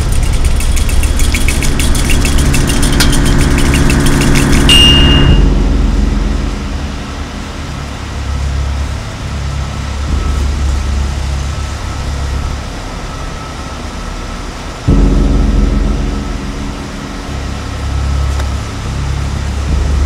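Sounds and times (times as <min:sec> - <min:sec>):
low rumbling drone: 0:00.0 - 0:20.0
thin high tone: 0:01.6 - 0:09.3.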